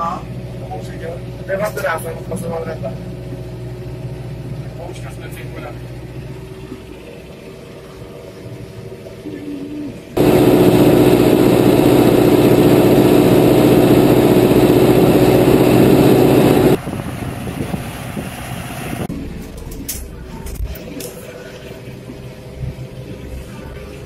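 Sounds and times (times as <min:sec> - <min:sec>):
tractor passing: 0:10.2 - 0:19.1
tractor engine running: 0:10.2 - 0:19.7.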